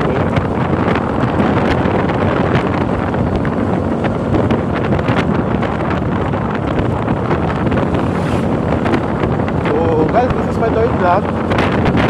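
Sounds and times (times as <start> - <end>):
low motorcycle rumble: 0.0 - 12.0
wind buffeting microphone: 0.0 - 12.0.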